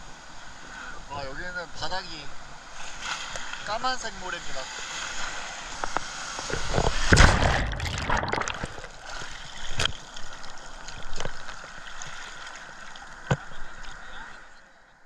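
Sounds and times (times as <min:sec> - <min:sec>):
water sloshing: 0:06.4 - 0:14.2.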